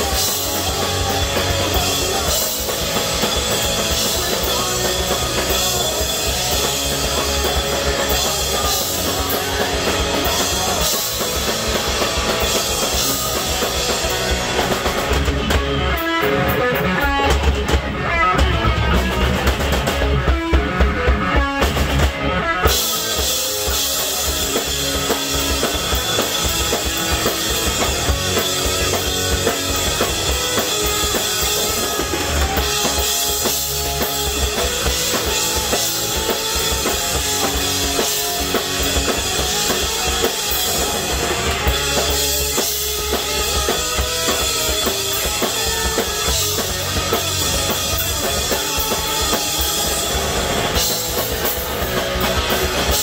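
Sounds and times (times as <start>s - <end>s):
bass guitar: 0.0s - 53.0s
drum kit: 0.0s - 53.0s
electric guitars: 0.0s - 53.0s.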